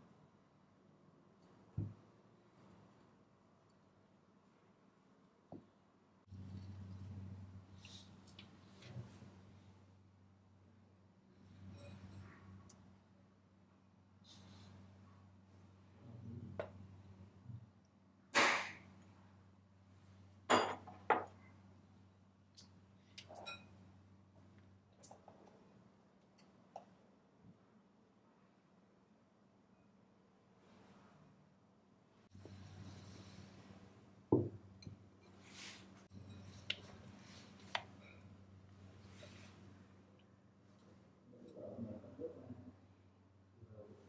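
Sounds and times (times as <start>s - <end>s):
faint hum: 21.2s - 44.0s.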